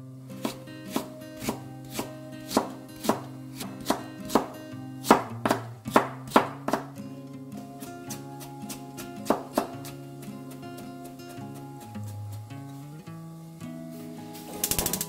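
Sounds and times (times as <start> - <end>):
soft background music: 0.0 - 15.0
knife chopping on cutting board: 0.4 - 6.9, 8.1 - 10.0.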